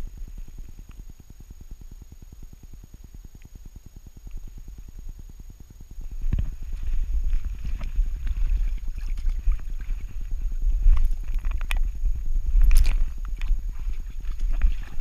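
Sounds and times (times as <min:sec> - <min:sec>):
paws splashing in water: 0:12.6 - 0:15.0.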